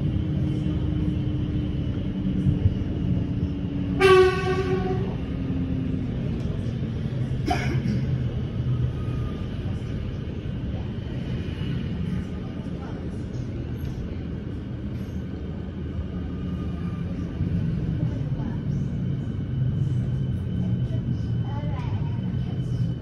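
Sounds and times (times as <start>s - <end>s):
electric train rumble: 0.0s - 23.0s
train passing alongside: 0.0s - 23.0s
train horn: 4.0s - 5.2s.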